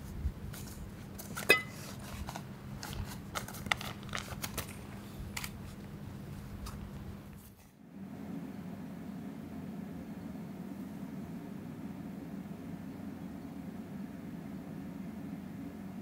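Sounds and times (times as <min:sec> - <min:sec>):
steady low hum: 0:00.0 - 0:16.0
objects being handled: 0:00.5 - 0:05.9.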